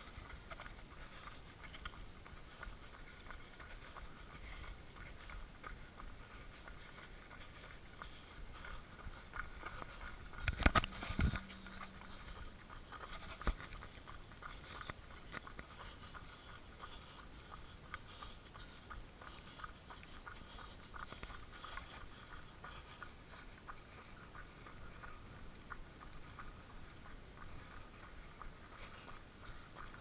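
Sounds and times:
running footsteps on gravel: 0.0 - 30.0.

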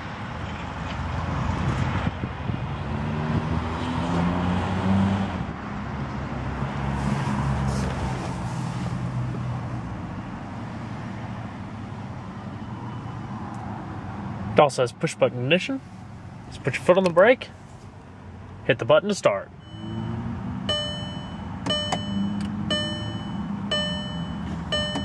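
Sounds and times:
car engine humming: 19.5 - 25.0.

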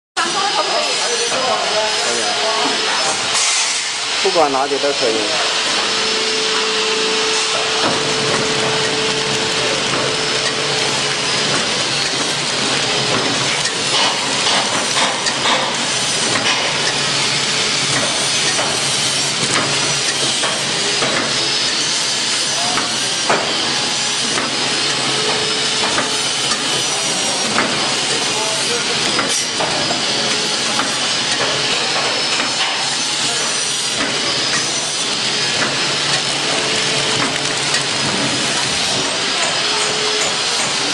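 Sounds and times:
packing machine hissing: 0.2 - 40.9
machine mechanism clicks and knocks: 17.9 - 21.4.

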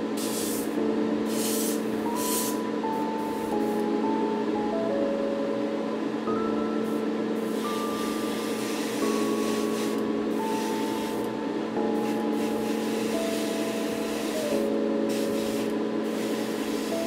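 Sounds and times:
airbrush hissing: 0.0 - 2.6, 7.4 - 11.3, 12.0 - 17.0
music with slow held notes: 0.0 - 17.0.

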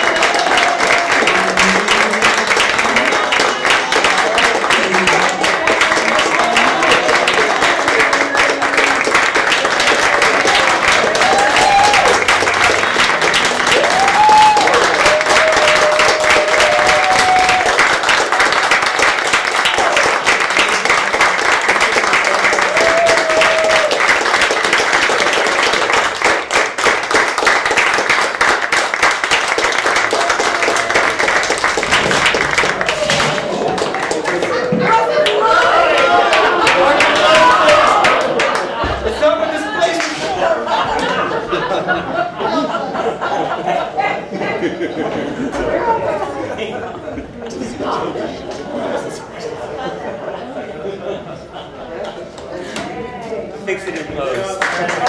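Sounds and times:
audience applauding: 0.0 - 41.8, 54.2 - 55.0.

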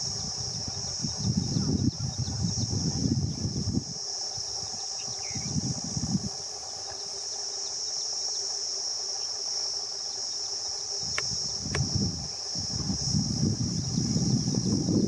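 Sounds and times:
insect chirring: 0.0 - 15.0
low rumbling gusts: 11.0 - 15.0
sharp clicks: 11.1 - 11.9.

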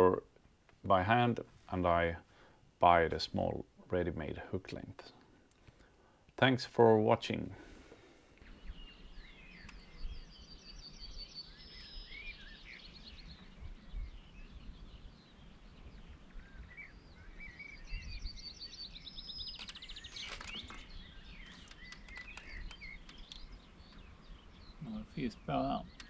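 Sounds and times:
birds chirping and whistling: 7.9 - 26.0.

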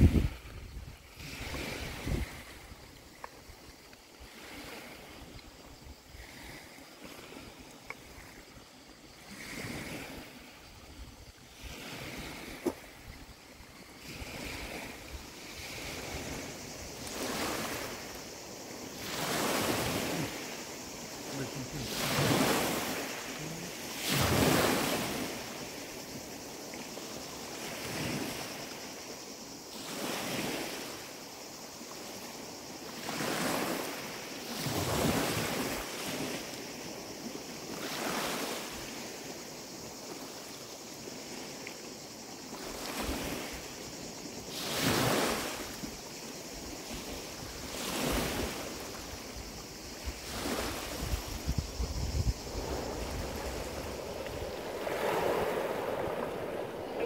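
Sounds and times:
wind on microphone: 0.0 - 3.6, 46.8 - 57.0
waves washing onto pebble beach: 0.0 - 57.0.

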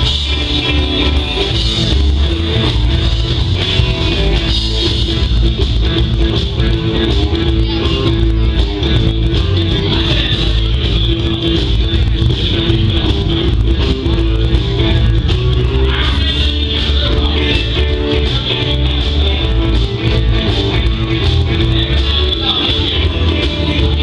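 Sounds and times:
live rock and roll band: 0.0 - 24.0.

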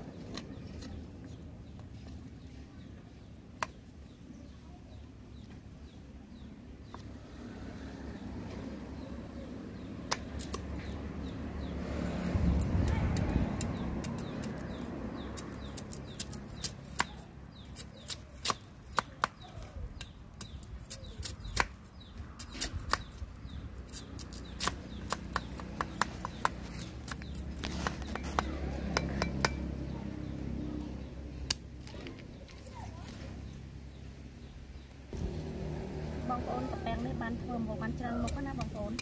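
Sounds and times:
cleaver chopping on wooden block: 24.2 - 29.6.

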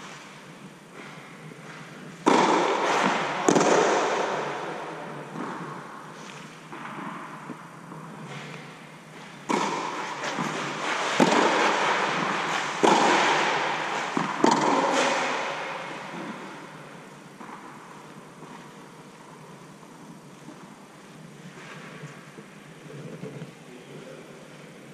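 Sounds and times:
tennis ball hit by rackets: 1.8 - 8.5, 9.2 - 18.7.

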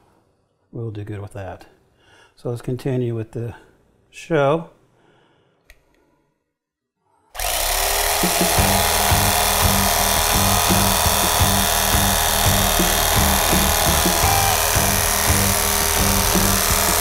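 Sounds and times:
electric carving knife sawing meat: 7.4 - 17.0
background music: 8.0 - 17.0.

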